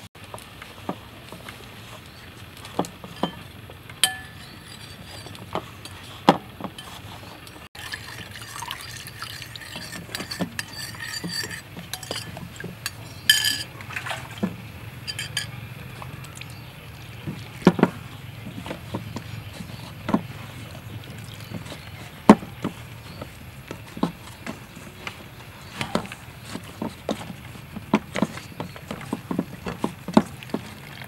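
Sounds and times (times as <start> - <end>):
metal spoon clinking on ceramic bowl: 4.0 - 6.0, 8.5 - 13.7, 15.0 - 15.6.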